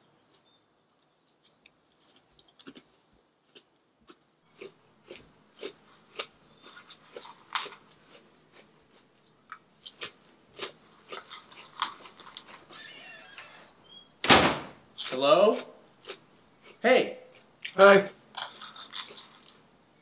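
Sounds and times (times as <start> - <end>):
person chewing crunchy cereal: 1.5 - 12.7, 15.6 - 19.7.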